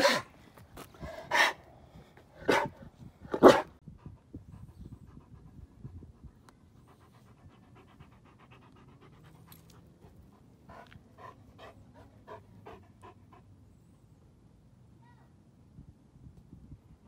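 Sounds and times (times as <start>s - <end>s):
dog panting: 3.9s - 13.5s.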